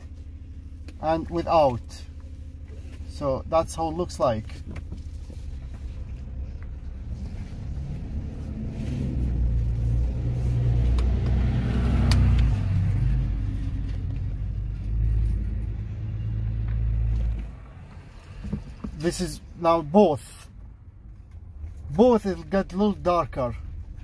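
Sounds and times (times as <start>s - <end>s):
car engine and road rumble: 0.0s - 24.0s.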